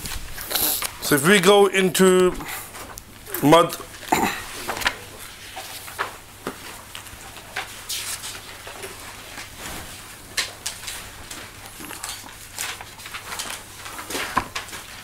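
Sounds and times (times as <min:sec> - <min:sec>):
low electrical hum: 0:00.0 - 0:15.0
paper and books rustling: 0:00.0 - 0:15.0.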